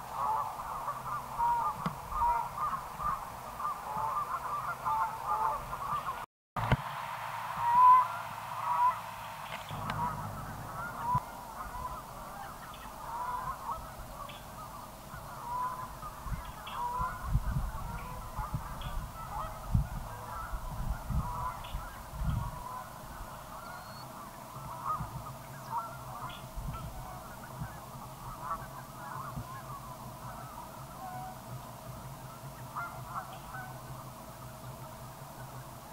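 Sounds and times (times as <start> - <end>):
flock of birds calling: 0.0 - 6.2, 7.6 - 35.9
low rumbles: 9.6 - 12.3.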